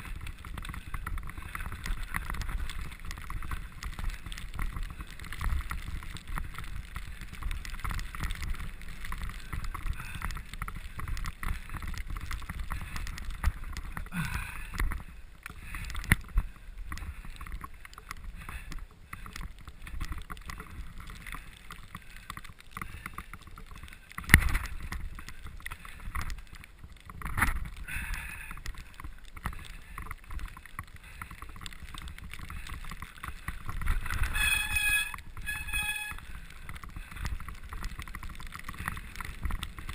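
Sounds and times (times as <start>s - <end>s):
bicycle rattling over bumps: 0.0s - 39.9s
high squeal: 34.3s - 36.2s.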